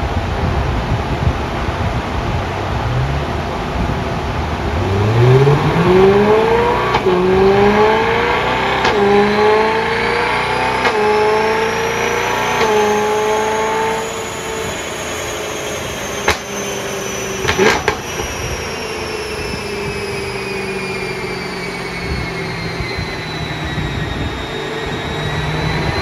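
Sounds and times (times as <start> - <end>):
thin high whine: 0.0 - 26.0
car engine revving: 1.8 - 26.0.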